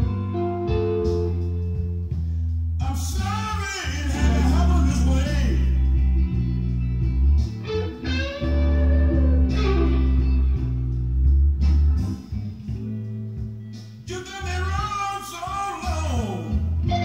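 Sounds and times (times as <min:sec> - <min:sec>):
bass guitar: 0:00.0 - 0:17.0
electric guitar: 0:00.0 - 0:17.0
person singing: 0:02.8 - 0:06.0, 0:14.1 - 0:17.0.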